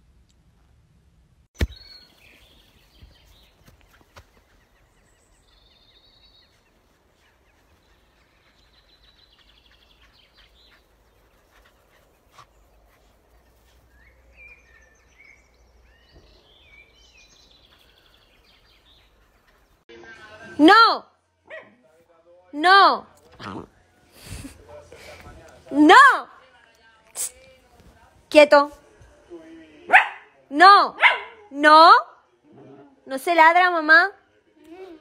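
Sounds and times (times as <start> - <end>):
small birds chirping: 1.6 - 19.9.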